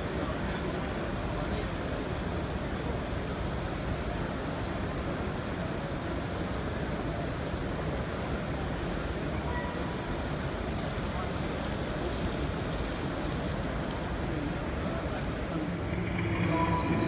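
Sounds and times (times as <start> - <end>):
crowd hubbub: 11.0 - 17.0.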